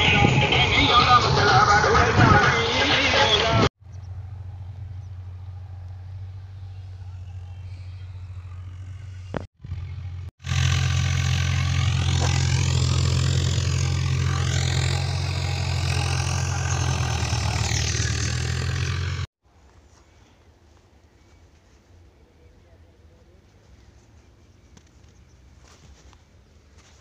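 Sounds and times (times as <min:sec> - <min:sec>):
tractor engine running: 0:03.8 - 0:19.3.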